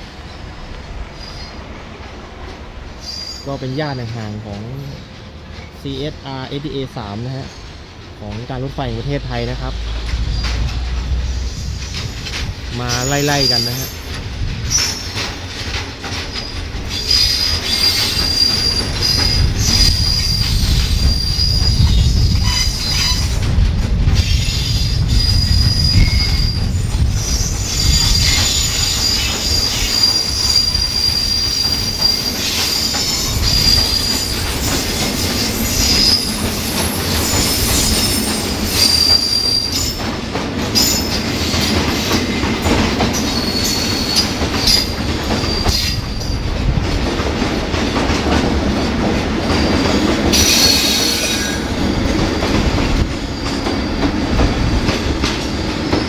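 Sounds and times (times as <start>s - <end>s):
high thin wheel squeal: 3.0s - 3.6s, 12.9s - 14.1s, 16.4s - 23.4s, 24.3s - 34.6s, 35.4s - 36.3s, 36.9s - 40.0s, 43.2s - 46.4s, 50.3s - 51.6s
freight wagons rumbling: 3.6s - 56.0s.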